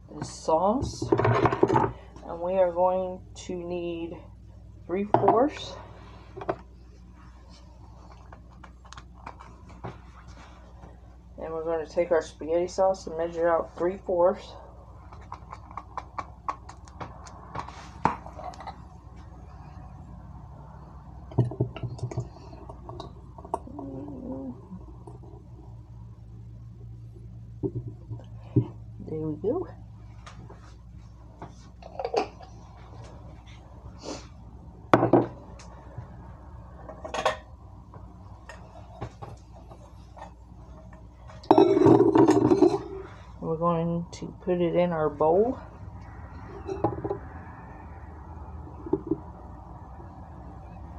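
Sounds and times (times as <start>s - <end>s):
glass jar set down: 41.5s - 42.9s
kitchenware clinking on tiles: 41.5s - 43.0s.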